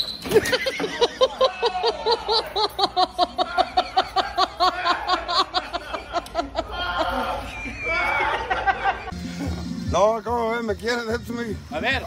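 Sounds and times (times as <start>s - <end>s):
person laughing hard: 0.3s - 9.6s.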